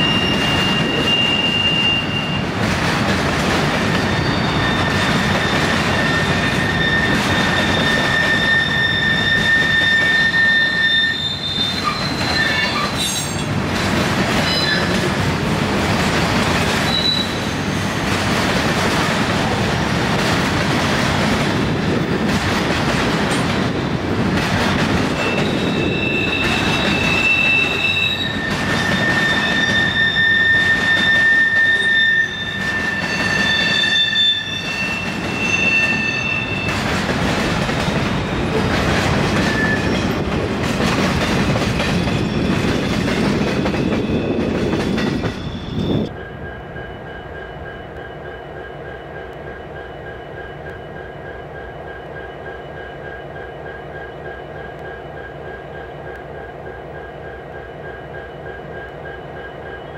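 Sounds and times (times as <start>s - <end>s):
high-pitched wheel squeal: 0.0s - 2.5s, 3.9s - 13.5s, 14.4s - 14.9s, 16.9s - 17.8s, 25.2s - 36.8s, 39.4s - 40.1s
train wheels on rails: 0.0s - 59.9s.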